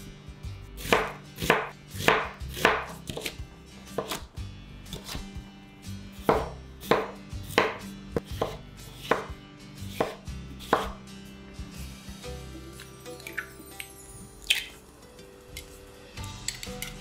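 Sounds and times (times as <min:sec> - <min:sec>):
knife chopping on wooden board: 0:00.8 - 0:04.3, 0:04.9 - 0:05.3, 0:06.2 - 0:11.0.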